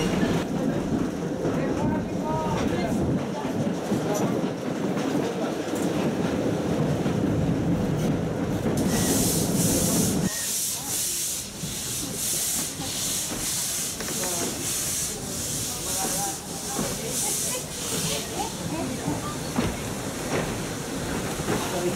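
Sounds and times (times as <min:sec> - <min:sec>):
low rumble of train: 0:00.0 - 0:21.9.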